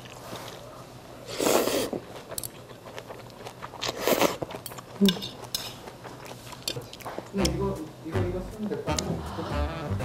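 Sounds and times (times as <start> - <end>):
person slurping noodles: 1.3 - 2.0
chewing: 1.4 - 7.4.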